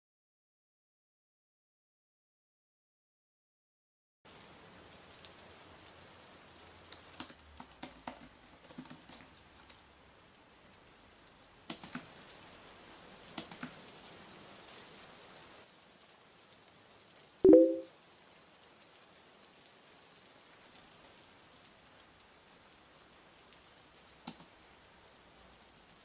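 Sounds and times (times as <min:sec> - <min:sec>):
faint room hiss: 0:04.3 - 0:26.0
typing on computer keyboard: 0:06.9 - 0:09.8, 0:11.7 - 0:12.1, 0:13.4 - 0:13.8, 0:24.2 - 0:24.5.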